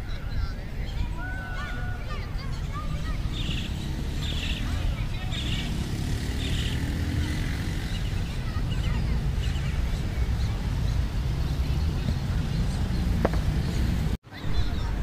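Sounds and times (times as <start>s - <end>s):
distant voices and calls: 0.0s - 15.0s
wind noise on microphone: 6.8s - 15.0s.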